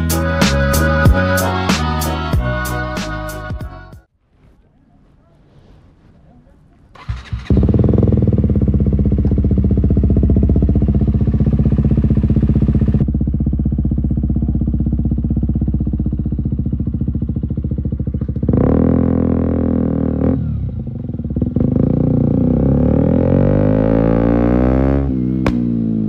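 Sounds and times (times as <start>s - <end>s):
motorcycle engine idling and revving: 6.9s - 26.0s.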